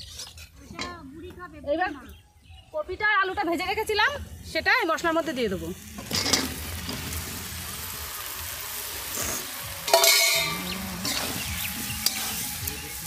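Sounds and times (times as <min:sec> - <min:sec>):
vegetables sizzling in hot oil: 0:03.6 - 0:13.0.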